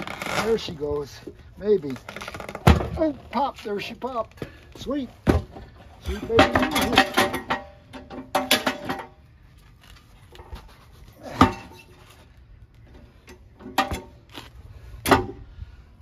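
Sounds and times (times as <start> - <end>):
metal clanks and knocks: 5.2 - 9.2, 12.9 - 14.2.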